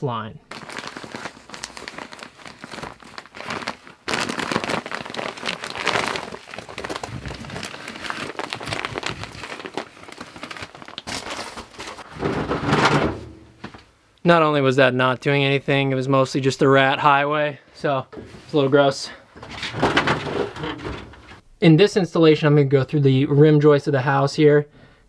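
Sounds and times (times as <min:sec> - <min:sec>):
insulation rustling and crackling: 0:00.5 - 0:14.0, 0:18.1 - 0:21.5.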